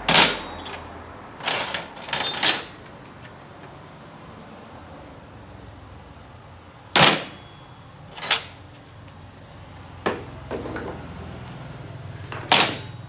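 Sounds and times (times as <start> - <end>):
metal hand tools clanking: 0.0 - 2.9, 8.1 - 8.6, 12.3 - 13.0.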